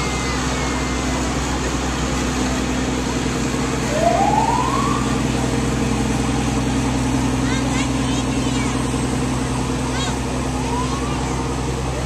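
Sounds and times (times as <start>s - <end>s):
vehicle engines humming: 0.0s - 12.0s
short rising siren whoop: 3.9s - 5.1s.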